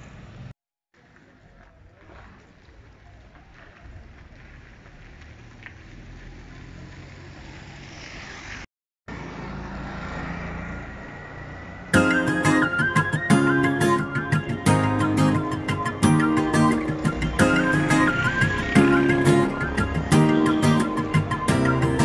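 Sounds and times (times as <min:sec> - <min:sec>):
vehicle engine: 0:00.0 - 0:22.0
music: 0:12.0 - 0:22.0.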